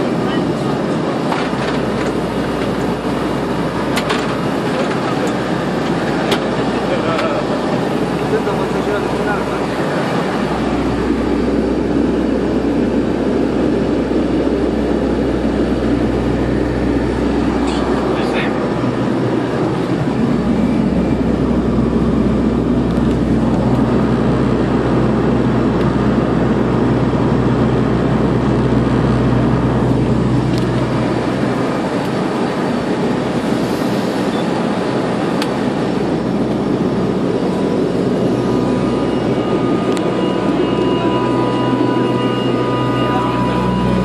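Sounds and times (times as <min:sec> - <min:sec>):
propeller aircraft engines droning: 0:00.0 - 0:44.0.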